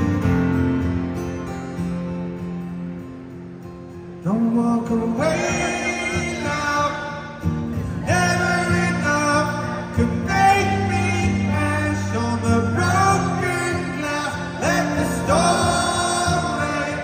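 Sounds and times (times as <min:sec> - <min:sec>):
acoustic guitar chords: 0:00.0 - 0:17.0
man singing: 0:04.2 - 0:17.0.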